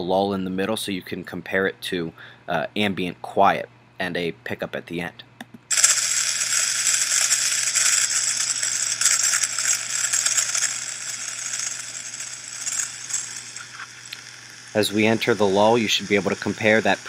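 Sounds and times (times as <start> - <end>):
high scratchy crackling hiss: 5.7 - 17.0.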